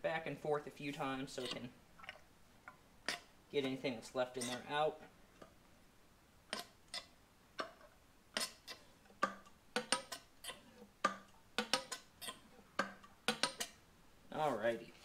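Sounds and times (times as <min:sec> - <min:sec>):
metallic clicks of fork tube pumping: 0:08.4 - 0:13.8.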